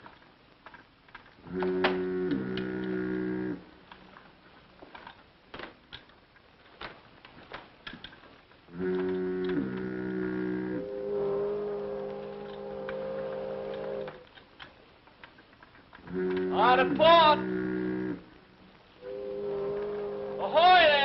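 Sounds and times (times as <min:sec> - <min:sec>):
faint clicks and creaks: 0:00.0 - 0:21.0
ship's fog horn: 0:09.2 - 0:14.1, 0:19.0 - 0:20.6.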